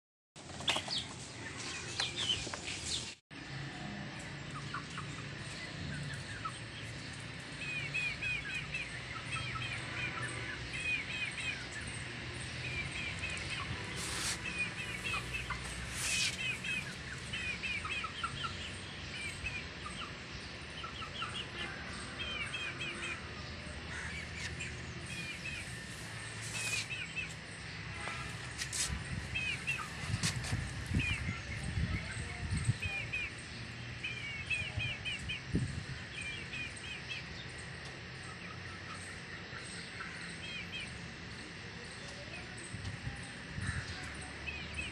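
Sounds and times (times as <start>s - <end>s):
steady low hum: 3.4s - 44.9s
chicks peeping: 12.8s - 23.4s, 24.2s - 33.5s.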